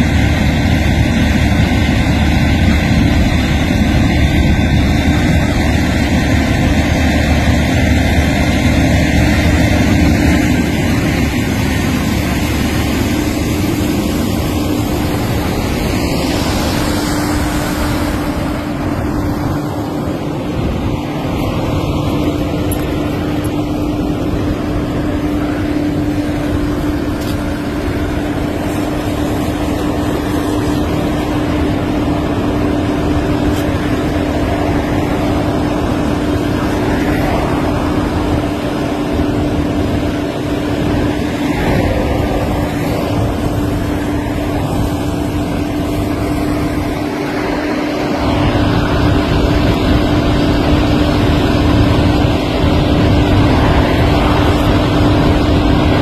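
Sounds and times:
fire engine pump humming: 0.0 - 56.0
hose hiss and rumble: 0.0 - 56.0.

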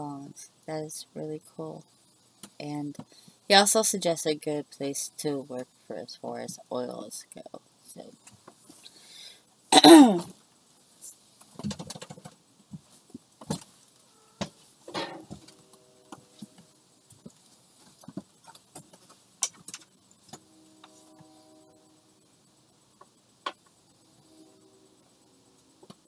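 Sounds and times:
faint steady tone: 13.9 - 18.6, 19.9 - 26.0
small objects clicking and rattling: 14.9 - 20.4.

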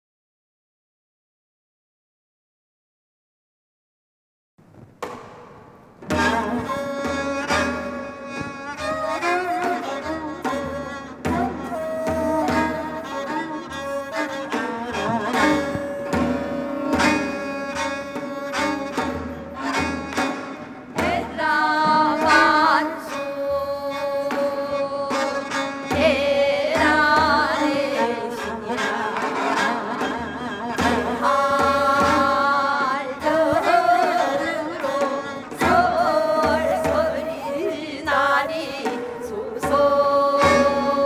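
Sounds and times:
steady drum rhythm: 4.6 - 28.2, 28.9 - 41.0
folk ensemble with flute and zither: 6.0 - 41.0
women singing: 8.8 - 13.5, 14.2 - 41.0.

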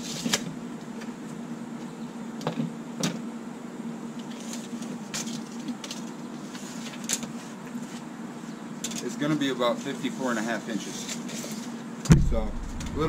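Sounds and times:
low hum: 12.1 - 13.0.

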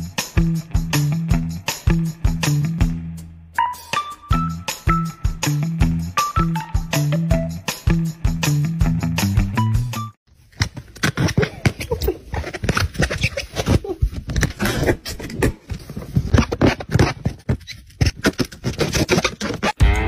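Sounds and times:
rubber balloon scraping: 10.8 - 19.8.

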